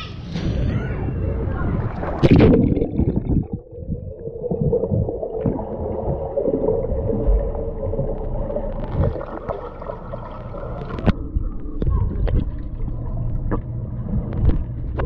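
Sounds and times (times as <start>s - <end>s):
steady hum: 0.3s - 15.0s
underwater rumbling and gurgling: 0.3s - 15.0s.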